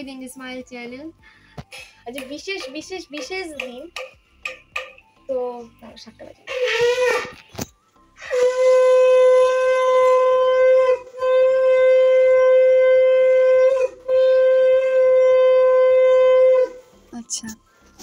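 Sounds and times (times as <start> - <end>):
conch shell blasts: 6.5 - 7.3, 8.2 - 16.8.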